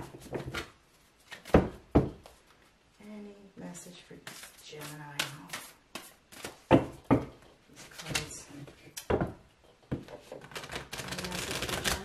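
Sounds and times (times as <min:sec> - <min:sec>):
cards clacking: 0:10.4 - 0:12.0.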